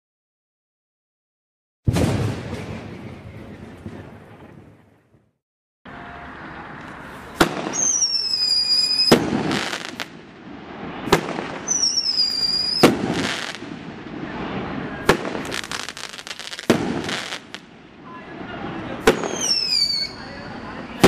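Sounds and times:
fireworks bangs: 1.9s - 5.3s, 6.8s - 21.0s
fireworks crackles: 6.8s - 21.0s
fireworks whistling: 7.0s - 17.7s, 18.6s - 21.0s.

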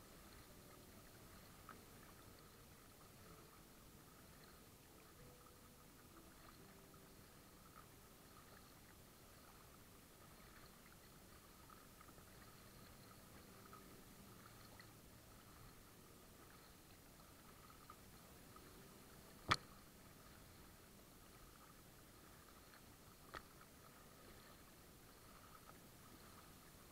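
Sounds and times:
water lapping against kayak: 0.0s - 26.9s
sharp click: 19.4s - 19.7s.

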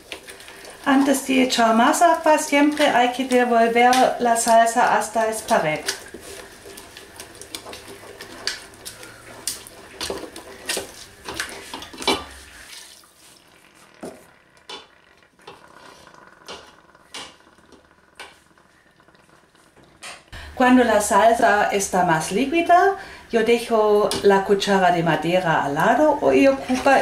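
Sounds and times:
wooden spoon scraping a pot: 0.0s - 18.5s, 26.4s - 27.0s.

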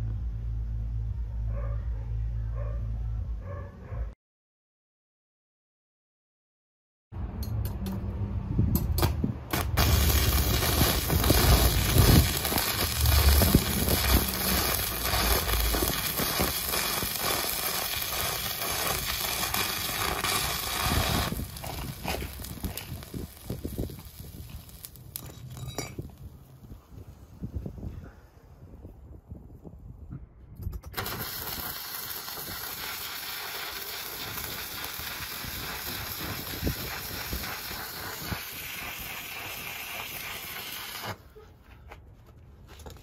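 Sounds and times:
welding arc crackling: 9.0s - 26.3s, 30.8s - 41.2s.

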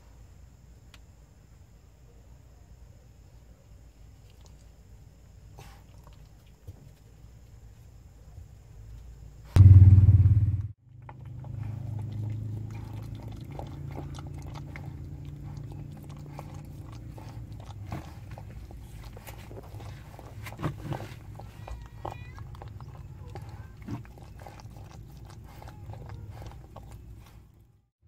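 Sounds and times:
steady low hum: 0.0s - 27.9s
puppies nursing smacking: 10.9s - 27.8s.

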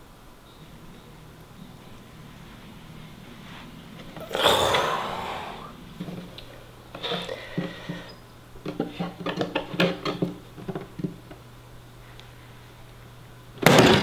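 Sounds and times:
rush of noise: 3.5s - 6.0s.

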